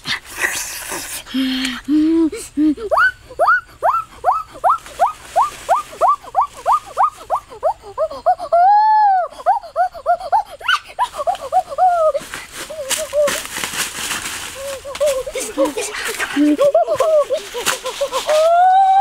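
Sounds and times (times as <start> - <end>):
animal whining yelps: 2.9 - 12.2.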